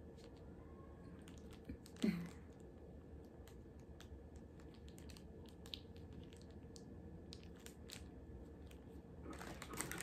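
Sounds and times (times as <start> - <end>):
low room hum: 0.0 - 10.0
plastic packet being squeezed: 3.3 - 10.0.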